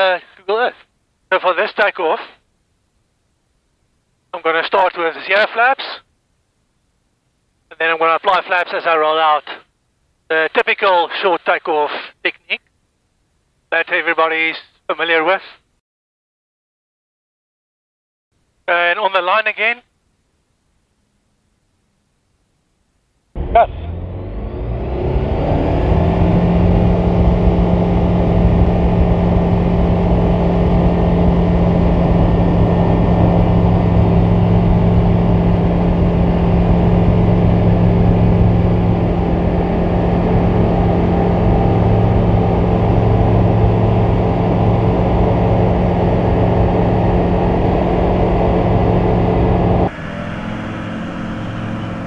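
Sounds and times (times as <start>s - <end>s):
aircraft engine and propeller: 23.4s - 52.0s.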